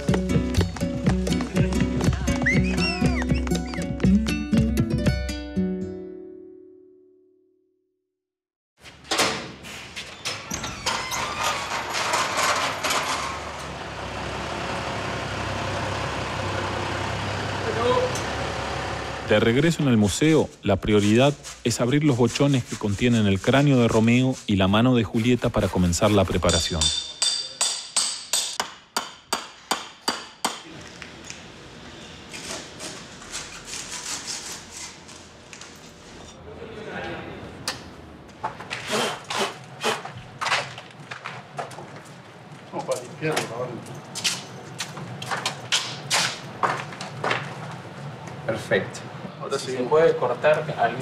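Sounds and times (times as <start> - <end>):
engine knocks and clatters: 11.6 - 19.3
vehicle engine running: 13.4 - 19.4.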